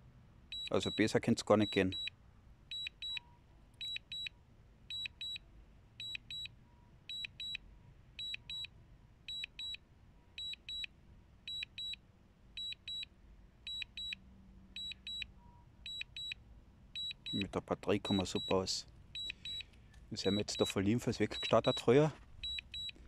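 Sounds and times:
high-pitched warning beeps: 0:00.5 - 0:02.1, 0:02.7 - 0:04.3, 0:04.9 - 0:05.4, 0:06.0 - 0:06.5, 0:07.1 - 0:07.6, 0:08.2 - 0:08.7, 0:09.3 - 0:09.8, 0:10.4 - 0:10.9, 0:11.5 - 0:12.0, 0:12.6 - 0:13.1, 0:13.7 - 0:14.2, 0:14.8 - 0:16.4, 0:17.0 - 0:23.0.

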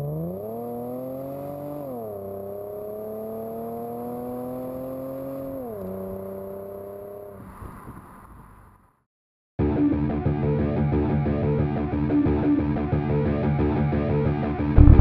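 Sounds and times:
car engine accelerating hard: 0:00.0 - 0:07.6, 0:14.8 - 0:15.0.

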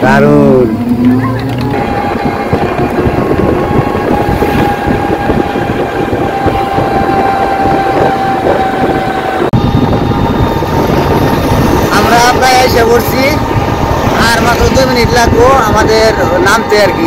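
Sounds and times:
vehicle interior road rumble: 0:00.0 - 0:05.8
constant whine: 0:00.0 - 0:17.0.

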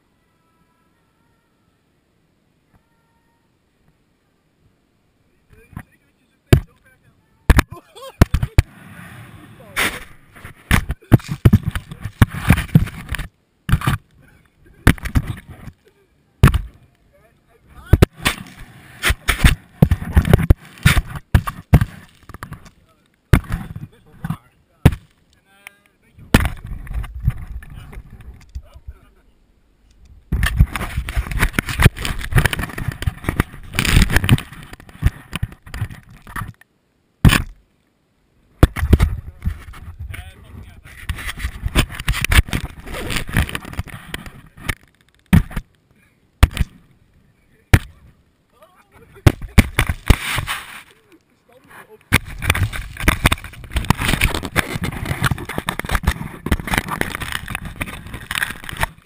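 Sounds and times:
hands rubbing a ball: 0:49.2 - 0:51.1, 0:52.0 - 0:59.0.

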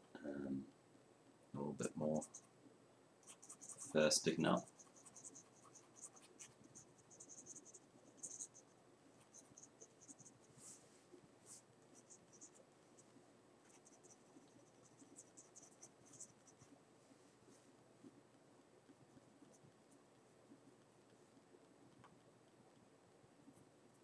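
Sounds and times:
pencil scratching on paper: 0:03.2 - 0:10.8, 0:11.5 - 0:16.8.

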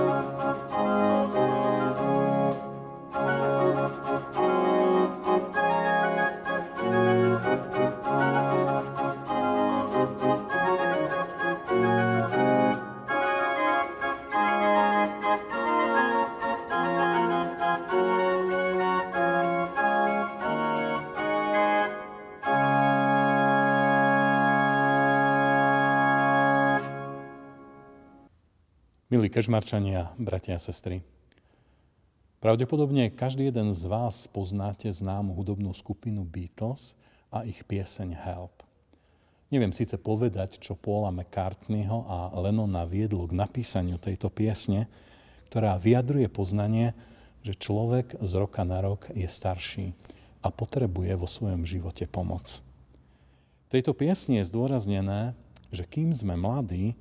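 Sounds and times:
pipe organ chords: 0:00.0 - 0:28.3.

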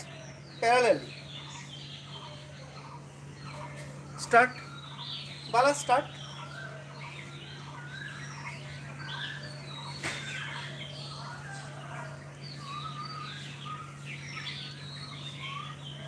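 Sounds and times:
small birds chirping: 0:00.0 - 0:16.0
steady low hum: 0:00.0 - 0:16.0.

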